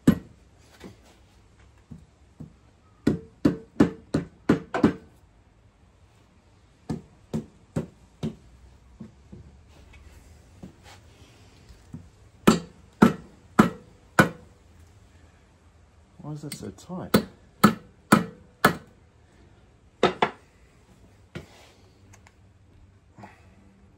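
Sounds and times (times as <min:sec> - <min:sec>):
rubber mallet knocking on metal: 0:02.4 - 0:05.0, 0:12.4 - 0:14.4.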